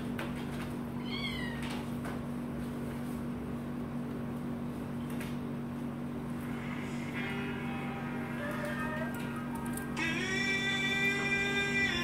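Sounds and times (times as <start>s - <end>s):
steady low hum: 0.0s - 12.0s
kitten meowing: 1.0s - 1.7s.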